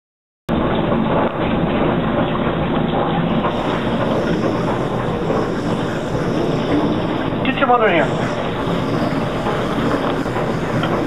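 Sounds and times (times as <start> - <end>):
tap water running into sink: 0.5 - 11.0.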